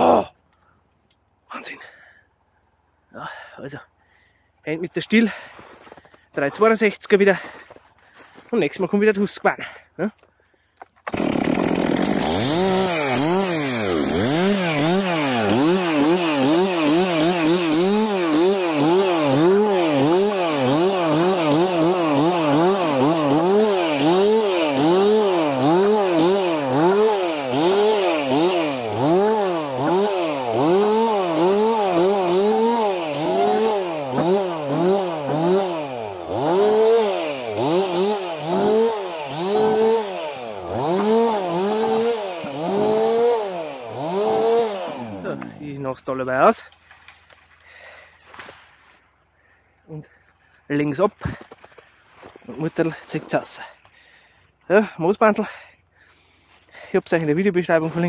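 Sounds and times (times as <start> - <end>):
chainsaw revving: 11.0 - 45.9.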